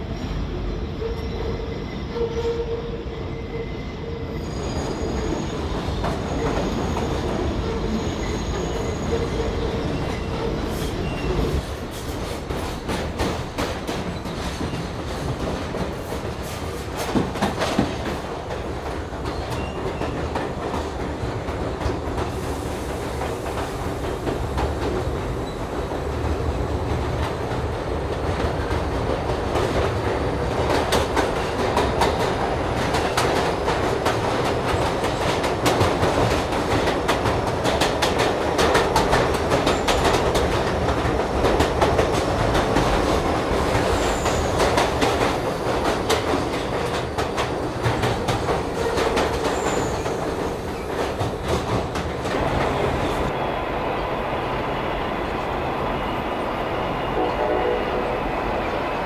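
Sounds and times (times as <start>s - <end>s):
subway train rumble: 0.0s - 59.0s
wheel squeal: 1.1s - 11.6s, 48.8s - 50.2s
wheel clicks and clacks on rails: 26.8s - 52.8s.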